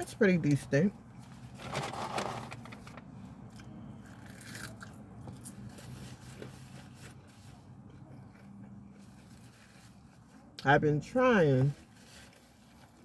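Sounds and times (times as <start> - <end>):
person chewing food: 7.8 - 9.3.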